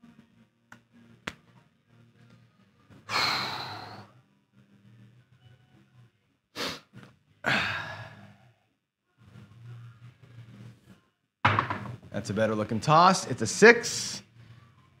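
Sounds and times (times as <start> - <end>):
man sighing heavily: 7.4 - 8.3.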